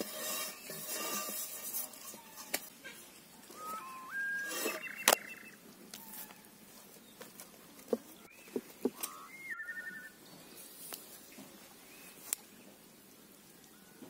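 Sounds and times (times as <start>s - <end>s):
birds whistling: 3.5s - 6.2s, 8.2s - 10.2s.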